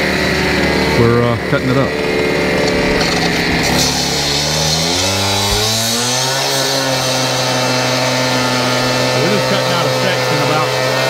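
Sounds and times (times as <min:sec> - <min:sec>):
cut-off saw cutting steel: 0:02.2 - 0:10.7.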